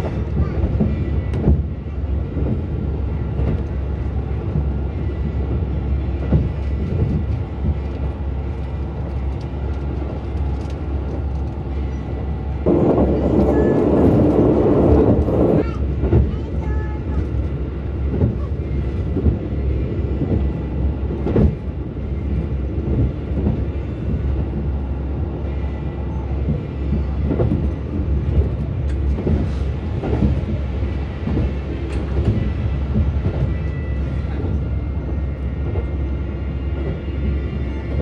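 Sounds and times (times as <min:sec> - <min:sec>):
diesel railcar rumbling: 0:00.0 - 0:38.0
wheels clacking on track: 0:06.1 - 0:19.5.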